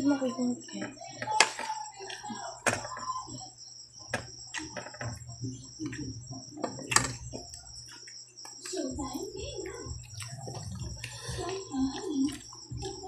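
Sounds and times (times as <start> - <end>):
crickets chirping: 0.0 - 13.0
eating clicks and taps: 4.0 - 13.0.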